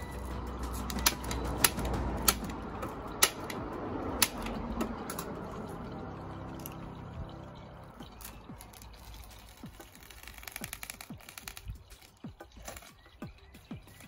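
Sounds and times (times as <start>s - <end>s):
plastic sheet rustling: 8.2s - 13.2s.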